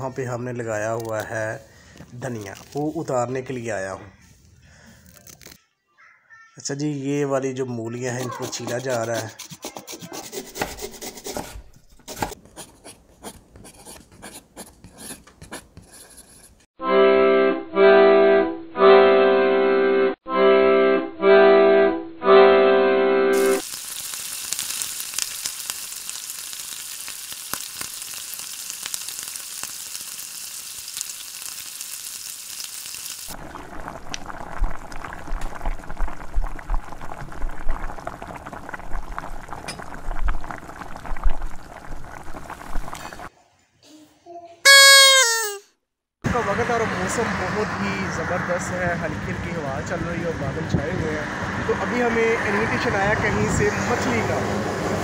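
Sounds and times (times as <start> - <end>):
flatbread sizzling on a griddle: 23.6 - 33.6.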